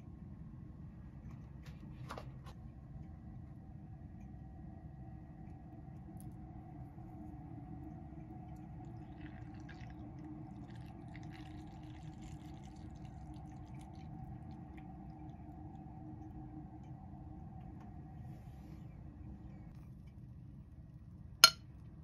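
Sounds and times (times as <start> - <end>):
steady low hum: 0.0 - 22.0
milk trickling into cup: 8.2 - 16.3.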